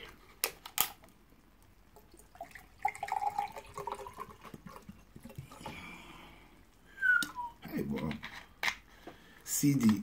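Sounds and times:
water pouring into cup: 1.9 - 6.0.

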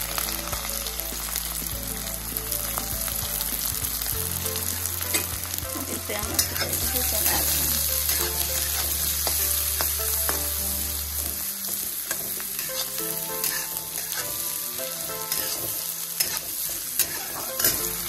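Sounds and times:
onions sizzling in hot oil: 0.0 - 18.0
spatula scraping a pan: 4.6 - 18.0.

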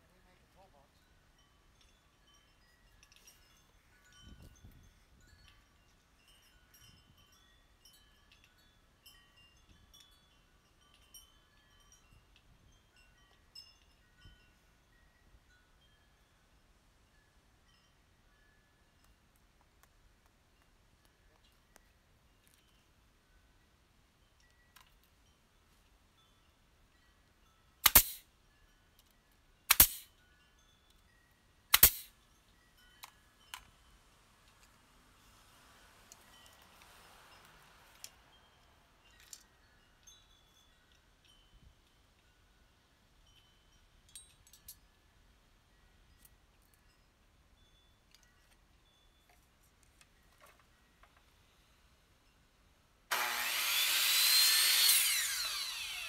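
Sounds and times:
wind chime ringing: 0.0 - 19.2, 22.5 - 49.3, 53.7 - 56.0
nail gun firing: 27.8 - 28.2, 29.7 - 30.0, 31.7 - 32.1, 53.1 - 56.0.

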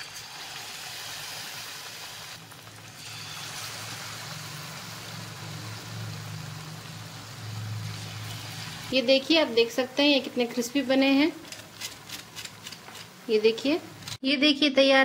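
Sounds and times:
food deep-frying in hot oil: 0.0 - 14.2.

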